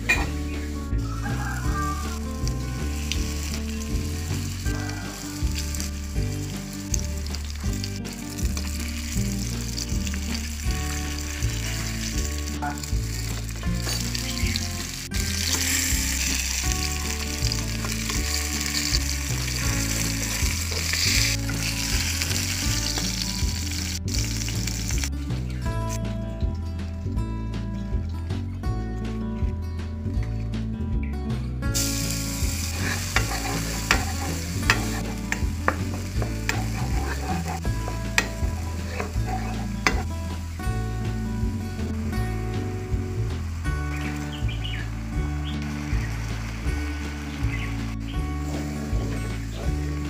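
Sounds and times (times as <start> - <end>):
fish frying in hot oil: 1.1 - 25.1, 31.8 - 40.6.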